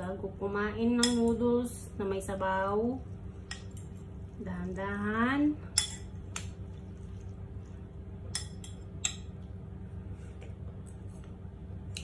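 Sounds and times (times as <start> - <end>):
steady low hum: 0.0 - 12.0
cutlery clinking on ceramic bowl: 5.8 - 6.1, 8.3 - 9.3.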